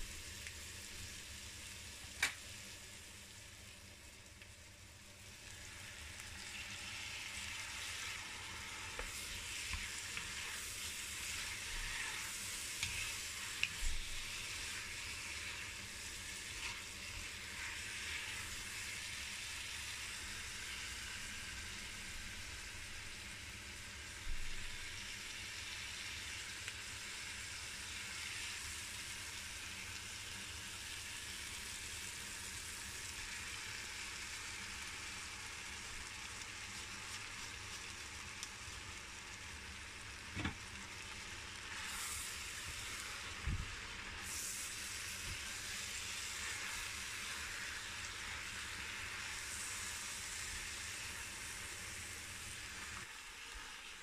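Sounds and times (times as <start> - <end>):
meat and onions sizzling in oil: 0.0 - 54.0
wooden spoon stirring: 8.9 - 15.6.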